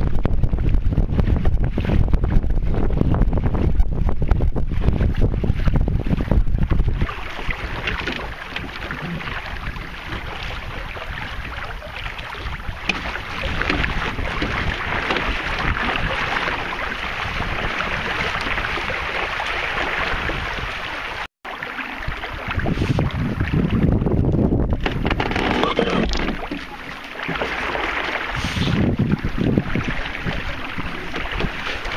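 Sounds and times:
wind buffeting microphone: 0:00.0 - 0:21.2, 0:21.9 - 0:31.9
water rushing along hull: 0:00.0 - 0:31.9.

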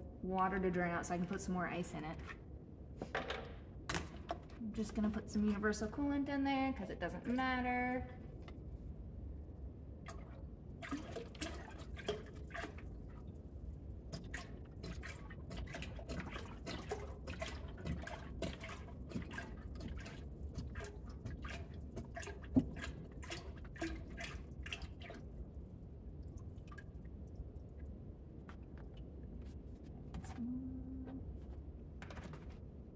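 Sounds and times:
liquid glugging and dripping: 0:08.1 - 0:32.6.

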